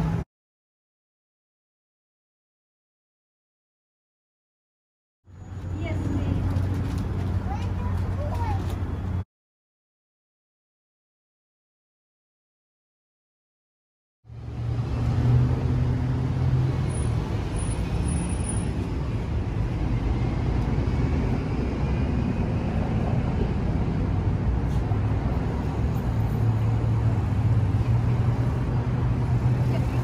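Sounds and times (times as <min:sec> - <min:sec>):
low rumble of road traffic: 0:00.0 - 0:00.2, 0:05.2 - 0:09.2, 0:14.2 - 0:30.0.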